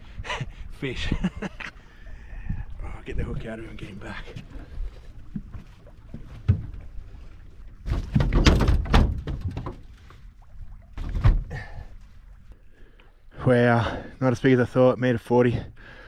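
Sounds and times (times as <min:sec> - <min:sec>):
fish thumping on boat deck: 0:07.8 - 0:09.9.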